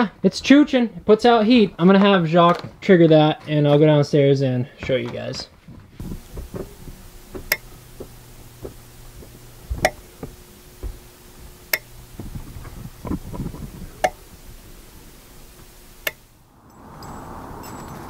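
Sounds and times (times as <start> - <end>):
soft thumps: 5.7 - 16.3
relay clicking: 6.0 - 16.4
faint low hum: 6.0 - 17.1.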